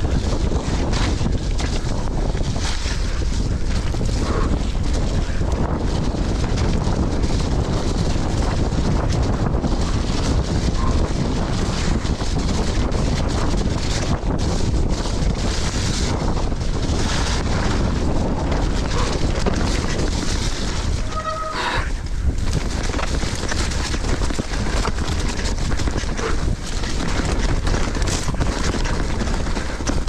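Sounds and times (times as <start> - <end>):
bike rumbling and rattling: 0.0 - 30.0
wind buffeting microphone: 0.0 - 30.0
brief squeal: 21.1 - 21.8.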